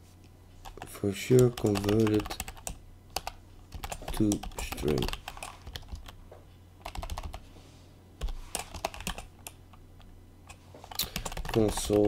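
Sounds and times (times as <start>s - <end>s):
low steady hum: 0.0s - 12.0s
typing on computer keyboard: 0.6s - 6.2s, 6.8s - 7.4s, 8.2s - 9.6s, 10.5s - 12.0s.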